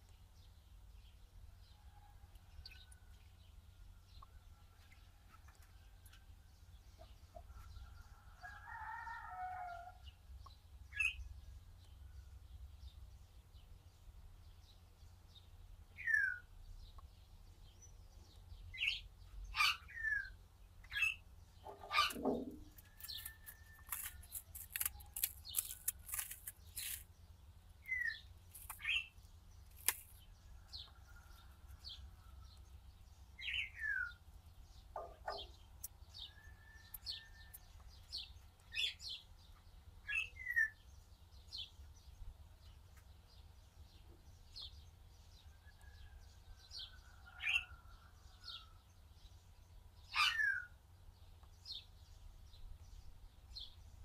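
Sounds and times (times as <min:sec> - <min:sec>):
small birds chirping: 0:00.0 - 0:54.0
sharp clicks and rustles: 0:22.0 - 0:27.1, 0:28.5 - 0:29.0, 0:29.6 - 0:30.2
bird warbling call: 0:50.1 - 0:50.7.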